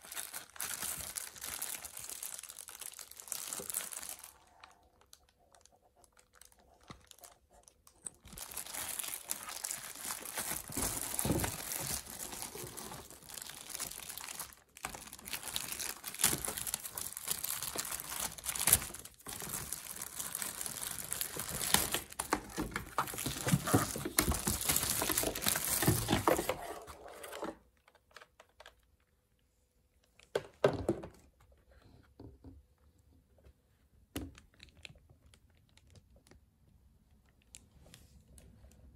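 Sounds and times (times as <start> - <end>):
plastic bag crinkling: 0.0 - 28.9
handling sounds: 6.8 - 28.7.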